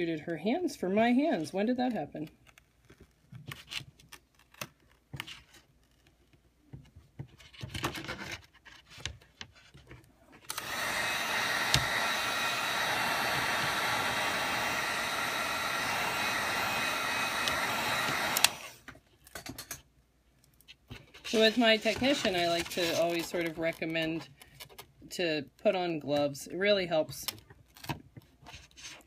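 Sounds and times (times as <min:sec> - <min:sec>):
electric blower rushing: 0:10.5 - 0:18.8.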